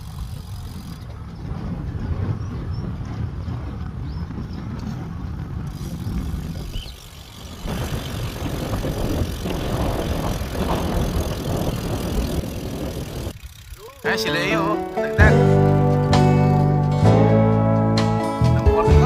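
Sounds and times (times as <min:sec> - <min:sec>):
wind on microphone: 0:00.0 - 0:13.4.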